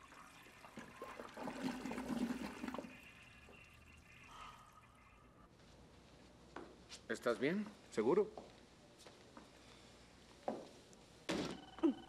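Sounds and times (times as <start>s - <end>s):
toilet flushing: 0.0s - 5.4s.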